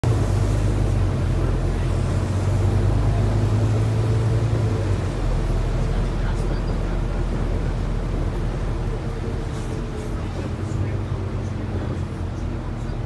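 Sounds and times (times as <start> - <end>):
bus engine humming: 0.0 - 13.0
road noise: 0.0 - 13.0.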